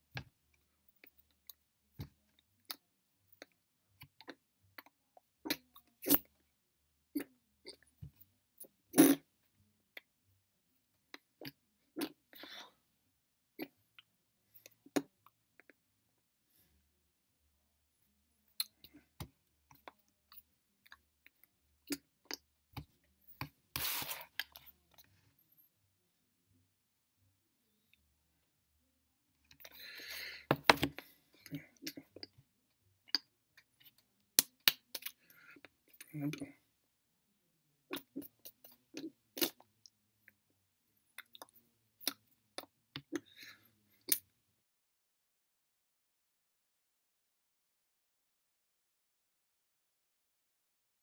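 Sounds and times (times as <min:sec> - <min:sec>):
sharp clicks and smacks: 0:30.5 - 0:31.1.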